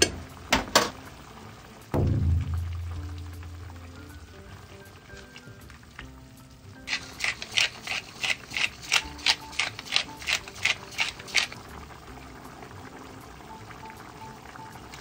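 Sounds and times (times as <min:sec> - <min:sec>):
pepper mill grinding: 0:06.8 - 0:11.6.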